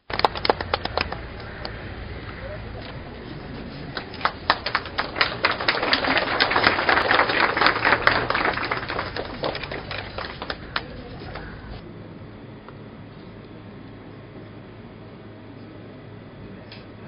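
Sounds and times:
crowd clapping: 0.0 - 1.7, 3.3 - 11.8.

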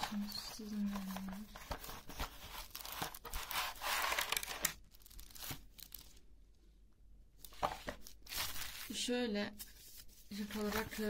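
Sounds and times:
cardboard scraping: 0.0 - 4.7
plastic bag crinkling: 0.0 - 6.2, 8.0 - 9.1.

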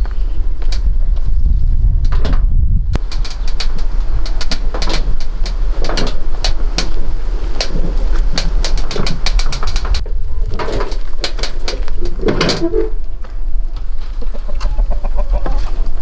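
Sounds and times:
sharp clicks and taps: 2.9 - 7.0
chickens clucking and cooing: 10.8 - 16.0.

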